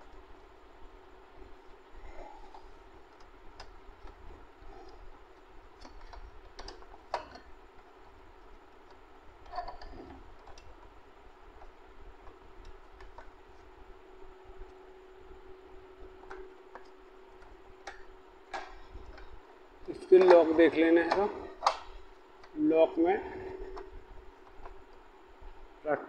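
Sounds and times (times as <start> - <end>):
faint steady hum: 0.0 - 26.0
plastic clicks and knocks: 21.1 - 22.6.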